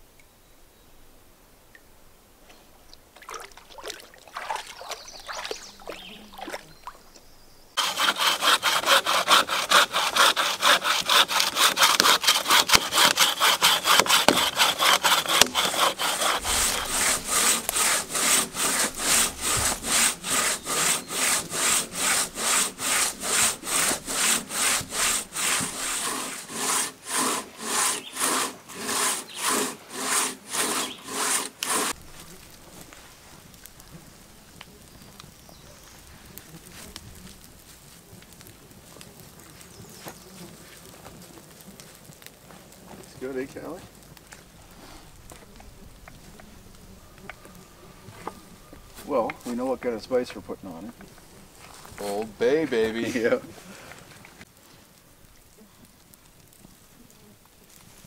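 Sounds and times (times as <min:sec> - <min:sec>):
hand saw cutting log: 0:07.8 - 0:32.0.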